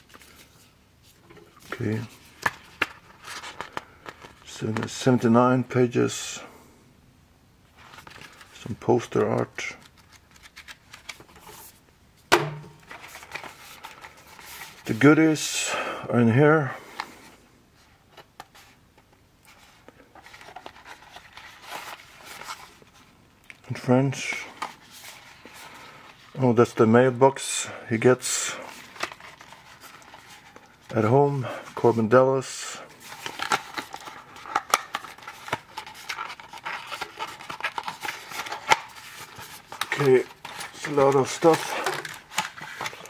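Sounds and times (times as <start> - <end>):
paper rustling and scraping: 0.0 - 5.0, 12.8 - 15.1, 19.5 - 23.1, 28.3 - 43.0.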